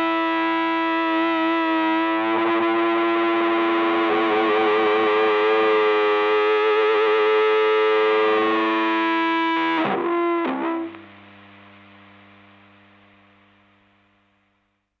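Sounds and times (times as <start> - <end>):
distorted rock guitar chord ringing: 2.1 - 11.6.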